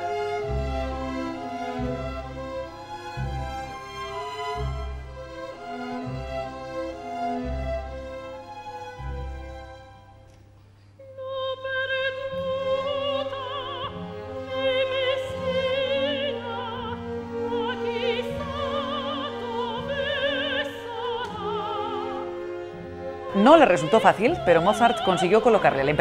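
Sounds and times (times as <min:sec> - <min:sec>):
orchestra playing: 0:00.0 - 0:10.3, 0:11.7 - 0:26.0
operatic singing with vibrato: 0:11.1 - 0:26.0.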